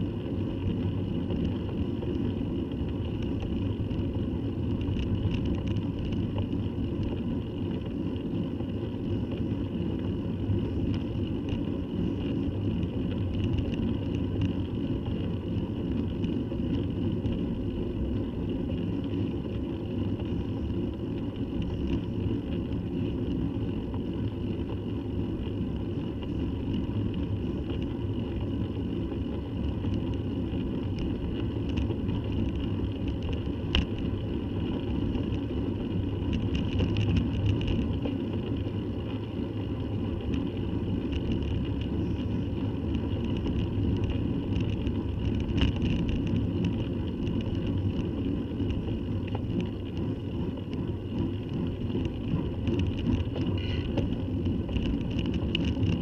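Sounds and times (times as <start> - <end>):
wind and road noise: 0.0 - 56.0
faint ticks: 25.4 - 39.3, 39.9 - 56.0.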